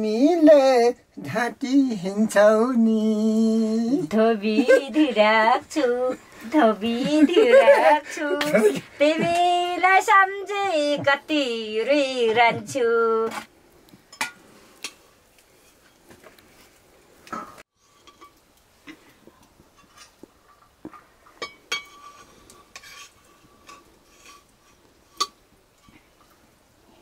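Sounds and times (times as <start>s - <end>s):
metal ladle clinking on steel pot: 21.4s - 24.4s.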